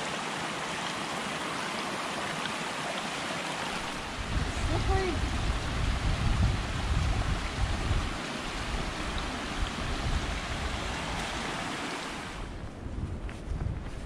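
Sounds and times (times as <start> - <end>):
creek running over rocks: 0.0 - 12.7
faint footsteps on trail: 12.4 - 14.0.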